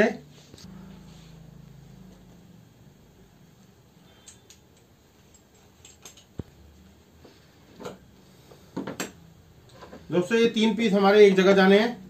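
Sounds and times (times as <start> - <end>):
wooden tools clicking and knocking: 4.2 - 6.5.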